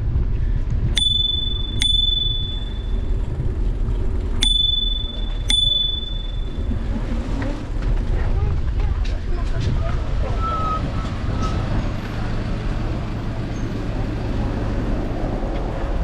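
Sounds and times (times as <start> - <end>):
low rumble from riding: 0.0 - 16.0
bicycle bell ringing: 1.0 - 3.5, 4.4 - 7.1.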